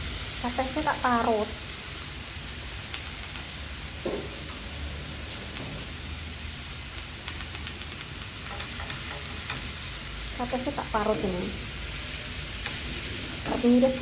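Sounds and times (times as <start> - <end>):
food sizzling in oil: 0.0 - 14.0
wooden spatula stirring pan: 7.2 - 9.8.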